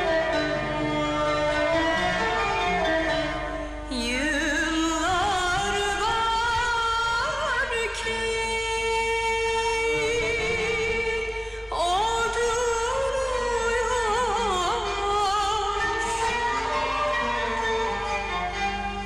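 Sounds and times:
instrumental music: 0.0 - 6.4, 7.7 - 19.0
woman singing ornamented lines: 3.9 - 16.9.

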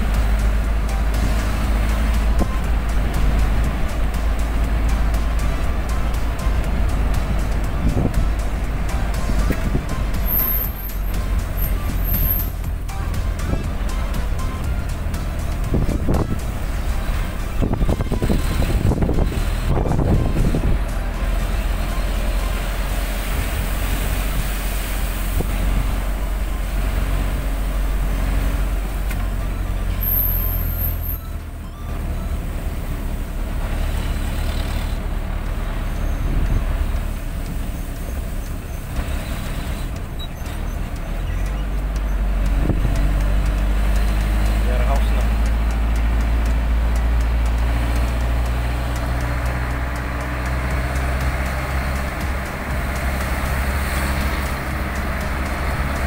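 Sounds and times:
engine rumble: 0.0 - 56.0
tyres hissing on wet road: 0.0 - 56.0.

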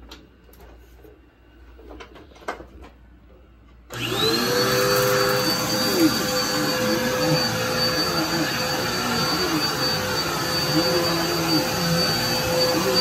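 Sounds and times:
vacuum cleaner running: 3.9 - 13.0.

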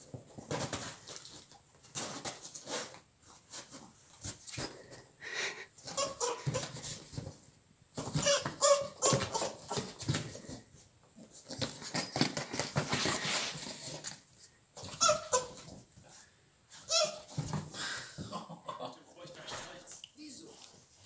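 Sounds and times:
high puppy vocal sounds: 5.3 - 7.0
scuffling and knocking: 5.9 - 16.2.

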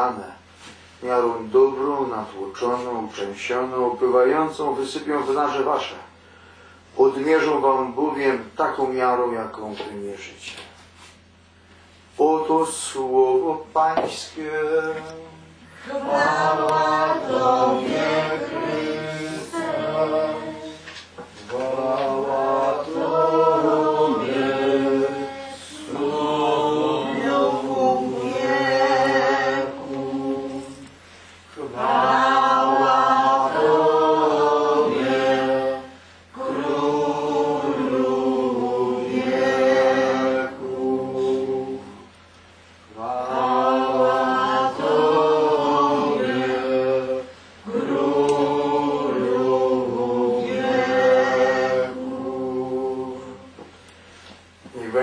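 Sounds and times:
voices singing a hymn: 12.2 - 55.0.

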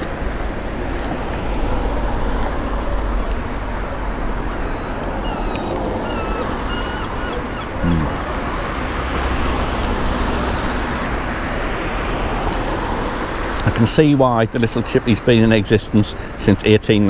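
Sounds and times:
traffic: 0.0 - 17.0
wind: 0.0 - 17.0
gulls calling: 2.9 - 9.6.

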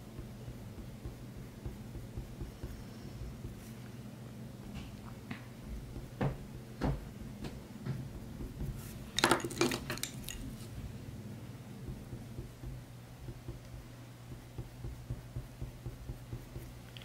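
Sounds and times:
wooden pencils clinking: 9.1 - 10.7.

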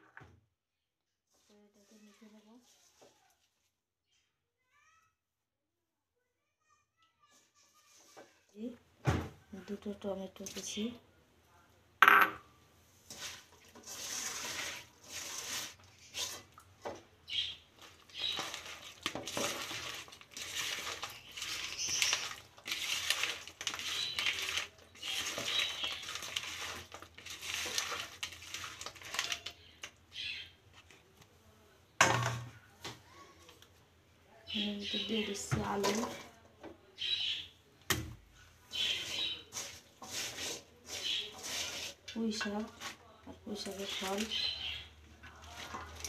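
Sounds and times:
vegetables clinking in a metal pan: 17.8 - 29.9, 38.8 - 46.0.

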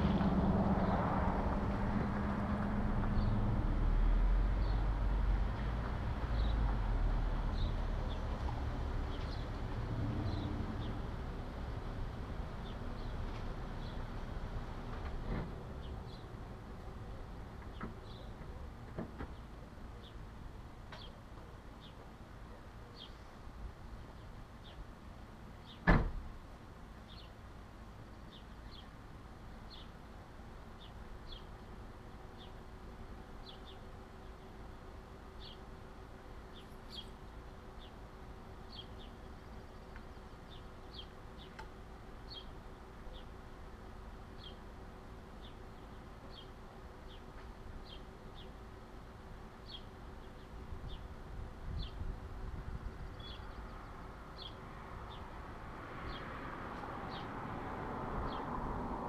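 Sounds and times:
low steady rumble: 0.0 - 17.5.

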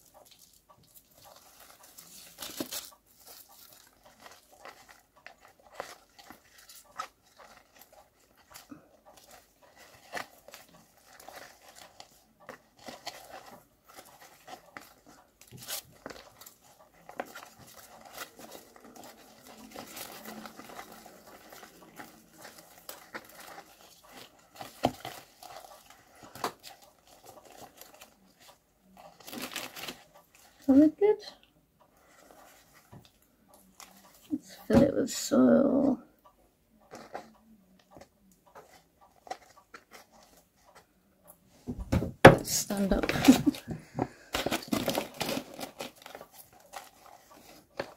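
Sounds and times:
hands rustling plant and soil: 0.0 - 31.3.

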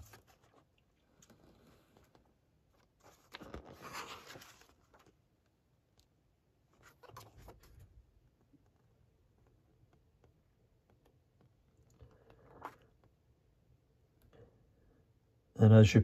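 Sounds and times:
paper pages turning: 0.0 - 5.3, 6.7 - 8.0.

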